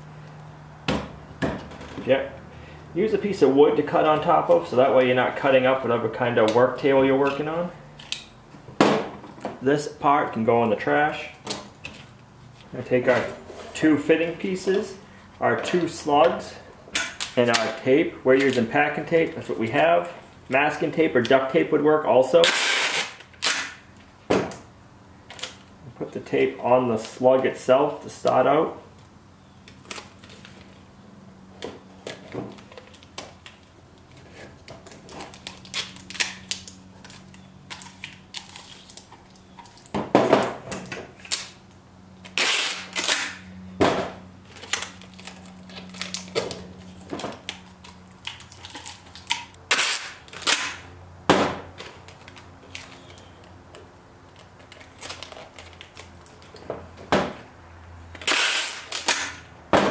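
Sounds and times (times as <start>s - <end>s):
packing tape ripping: 22.4s - 23.8s, 34.8s - 39.9s, 41.2s - 41.6s, 42.2s - 43.4s, 44.5s - 50.8s, 54.4s - 56.6s, 58.2s - 59.4s.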